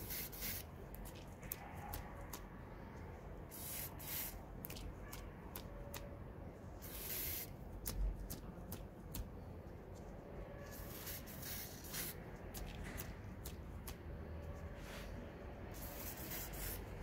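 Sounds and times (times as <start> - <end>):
spray paint can hissing: 0.0 - 0.7, 3.5 - 4.8, 6.8 - 8.0, 10.8 - 12.2, 15.7 - 17.0.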